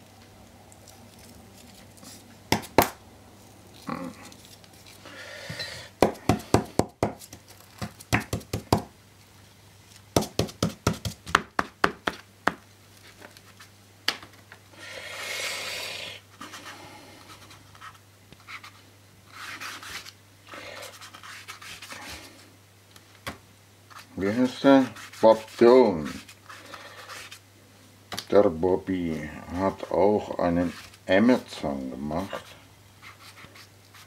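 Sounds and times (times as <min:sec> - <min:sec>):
brush strokes scratching paper: 0:15.2 - 0:22.4, 0:23.9 - 0:27.4, 0:32.2 - 0:34.0.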